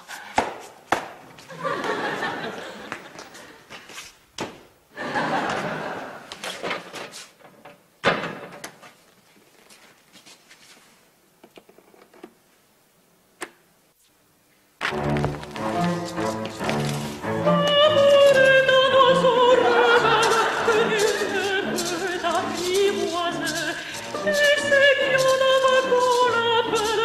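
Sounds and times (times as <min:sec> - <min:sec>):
scuffing: 0:00.0 - 0:04.7, 0:08.8 - 0:11.0, 0:14.8 - 0:27.0
audience laughter: 0:01.5 - 0:03.6, 0:04.9 - 0:06.4, 0:19.4 - 0:21.5.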